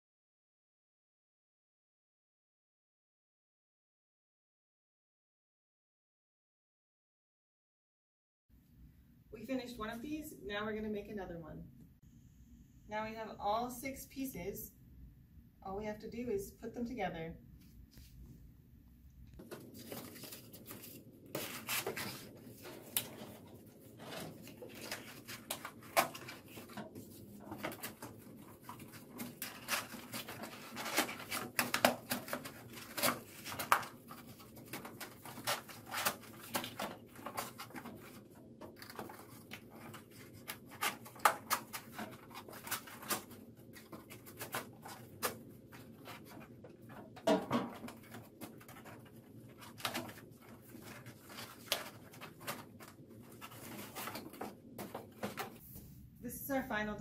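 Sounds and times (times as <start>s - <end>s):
cardboard rubbing and scraping: 19.4s - 46.8s.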